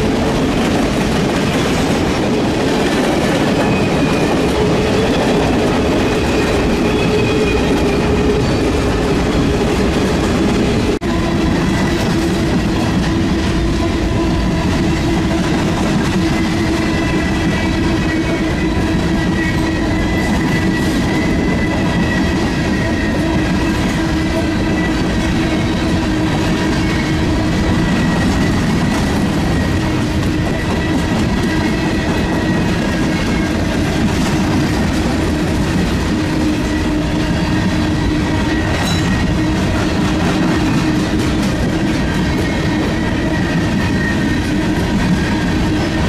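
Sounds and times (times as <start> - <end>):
train wheels clattering over joints: 0.0 - 46.0.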